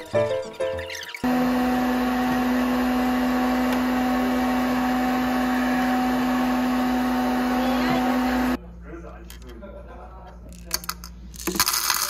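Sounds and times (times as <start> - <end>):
popcorn maker whirring: 0.9 - 8.6.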